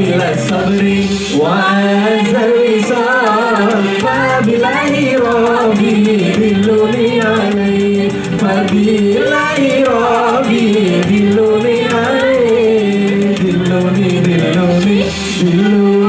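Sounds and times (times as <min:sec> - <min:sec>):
quick ticking beat: 0:00.0 - 0:01.0, 0:02.2 - 0:15.1
man singing through microphone: 0:00.0 - 0:16.0
sustained backing music: 0:00.0 - 0:16.0.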